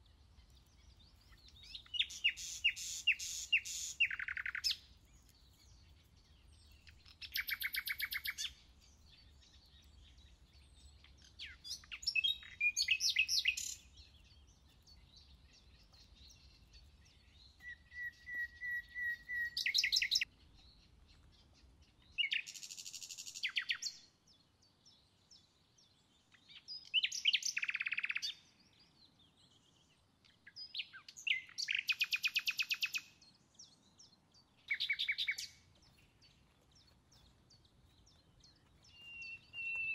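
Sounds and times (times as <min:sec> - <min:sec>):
quiet forest background: 0:00.0 - 0:39.9
songbird trilling: 0:01.2 - 0:04.8, 0:06.5 - 0:08.6, 0:11.2 - 0:13.9, 0:17.6 - 0:20.3, 0:26.9 - 0:28.3, 0:34.7 - 0:35.9, 0:38.0 - 0:39.9.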